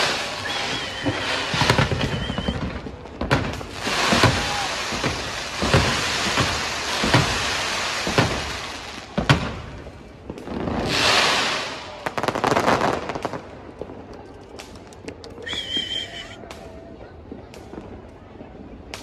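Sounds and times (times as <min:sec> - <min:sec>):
fireworks hissing: 0:00.0 - 0:13.5, 0:15.4 - 0:16.6
fireworks bangs: 0:00.0 - 0:19.0
crackling pops: 0:12.4 - 0:16.7.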